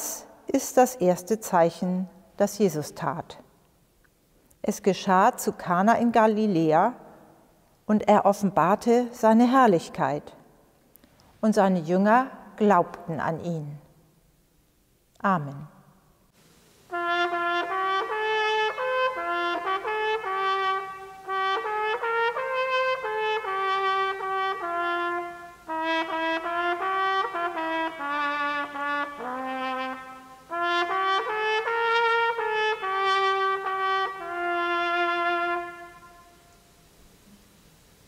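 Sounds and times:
solo trumpet playing hymn melody: 16.9s - 36.8s.

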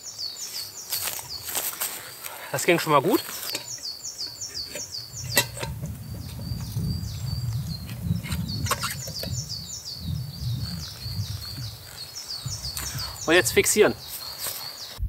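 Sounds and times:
small bird singing: 0.0s - 15.0s
low rumble: 5.0s - 13.3s.

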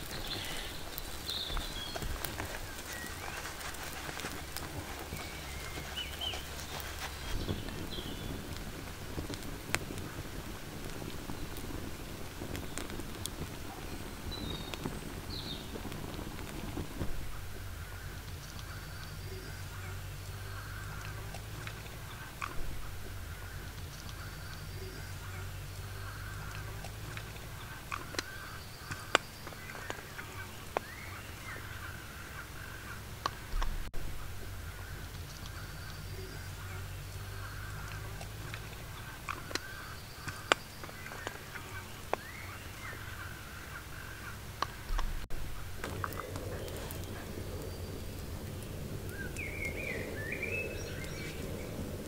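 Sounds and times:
loud pops: 0.0s - 50.1s
birds calling: 0.0s - 52.0s
sharp clicks and crackles: 0.0s - 52.0s
steady low hum: 0.0s - 52.0s.

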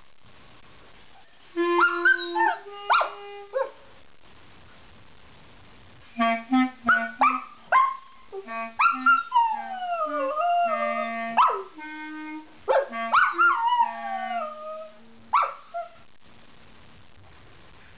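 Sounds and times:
clarinet low notes: 1.2s - 3.7s, 6.1s - 16.0s
dog yipping: 1.2s - 3.8s, 6.9s - 8.2s, 8.8s - 9.4s, 11.4s - 11.8s, 12.7s - 13.9s, 15.3s - 16.0s
dog howling: 8.8s - 11.7s, 12.7s - 16.0s.

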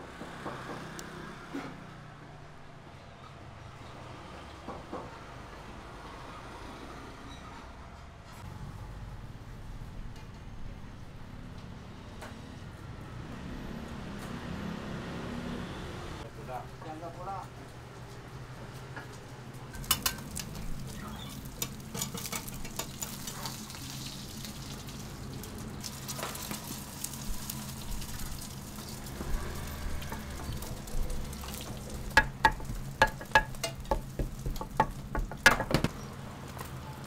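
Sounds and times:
pancake sizzling on griddle: 19.8s - 35.4s
metal spatula clinking and scraping: 21.3s - 23.6s, 33.0s - 35.0s.

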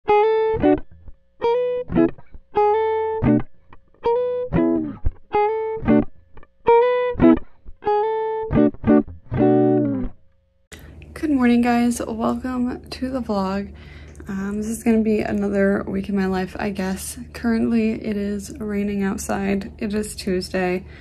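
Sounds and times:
plucked guitar phrase: 0.1s - 10.2s.

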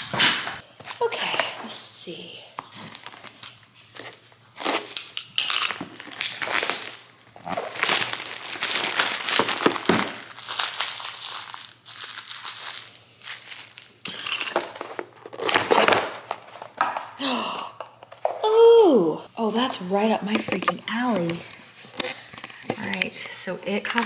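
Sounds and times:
paper packaging crinkling: 2.8s - 17.0s.

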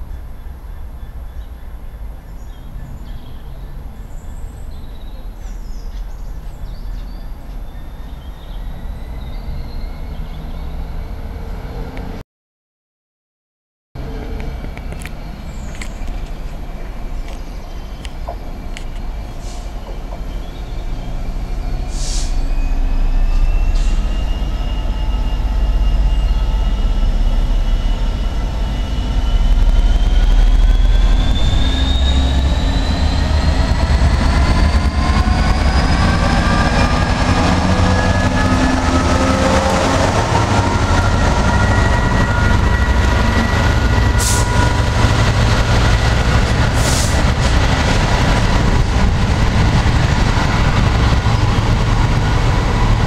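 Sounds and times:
diesel locomotive engine rumble: 14.0s - 53.0s.

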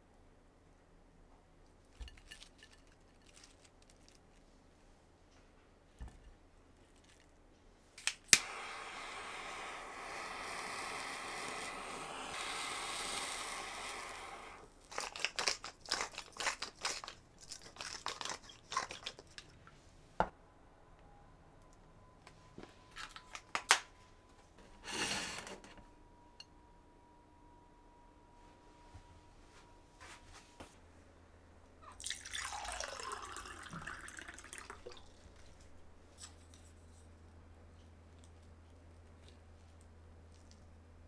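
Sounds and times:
kitchen torch clicking on: 8.0s - 14.7s
torch hissing: 8.3s - 14.7s
pepper grinder crunching: 14.8s - 19.5s.

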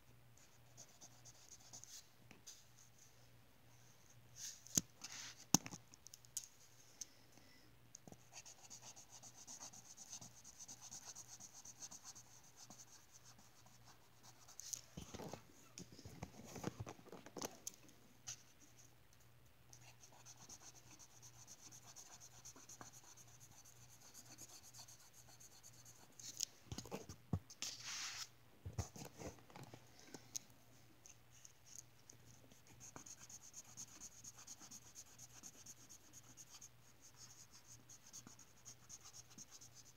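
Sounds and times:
faint low hum: 0.0s - 39.9s
marker scratching on paper: 32.6s - 39.9s.

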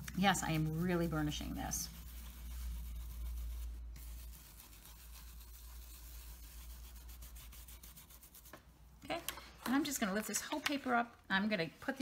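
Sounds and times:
stiff brush scrubbing plastic: 0.0s - 8.6s.

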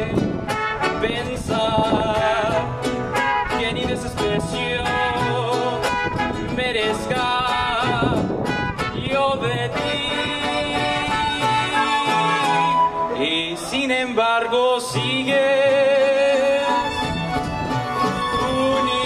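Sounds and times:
strummed guitars: 0.0s - 19.0s
violins playing melody: 16.6s - 19.0s.

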